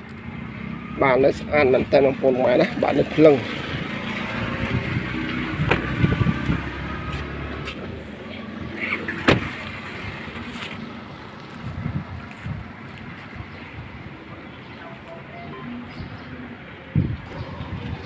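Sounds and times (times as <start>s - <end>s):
car door slamming shut: 9.2s - 9.6s.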